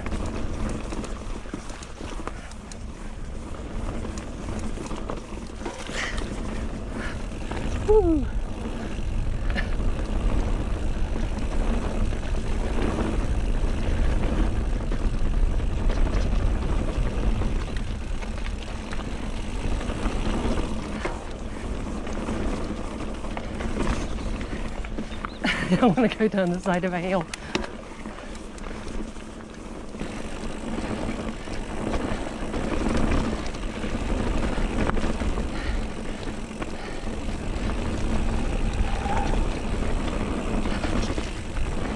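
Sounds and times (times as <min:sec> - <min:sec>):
bike rattles and clicks: 0:00.0 - 0:41.9
wind rumble on microphone: 0:30.2 - 0:41.9.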